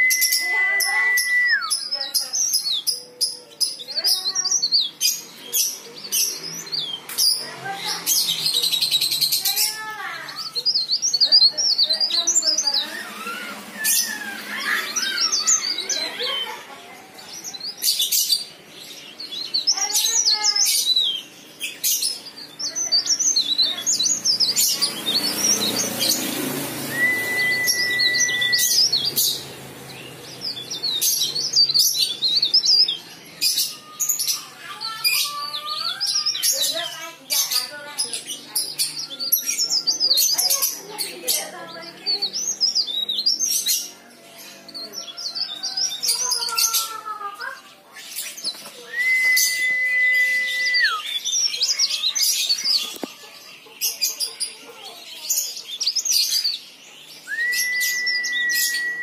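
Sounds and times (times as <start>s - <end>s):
steady bird whistle: 0.0s - 1.9s, 26.9s - 29.4s, 48.9s - 51.5s, 57.2s - 59.0s
bird twittering: 19.2s - 34.5s.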